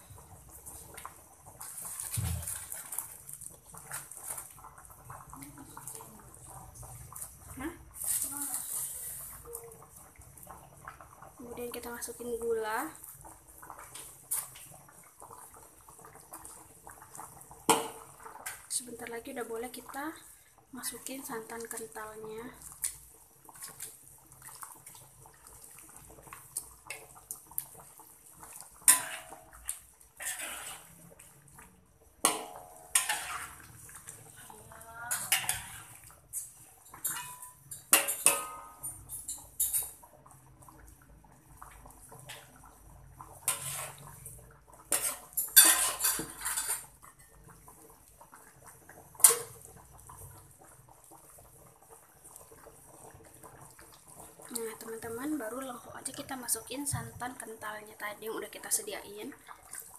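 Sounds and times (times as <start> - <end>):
metal spatula scraping a pot: 8.0 - 9.4, 28.8 - 31.2, 32.2 - 34.5, 35.1 - 40.0, 43.4 - 44.2, 44.9 - 46.9.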